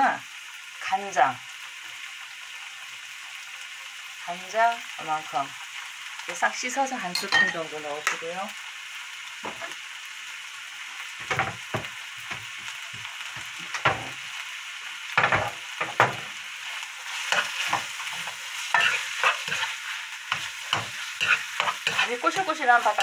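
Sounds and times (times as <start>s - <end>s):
rice sizzling in a frying pan: 0.0s - 23.0s
spoon scraping and knocking on pan: 9.4s - 9.8s, 11.2s - 14.2s, 15.2s - 16.4s, 17.1s - 23.0s.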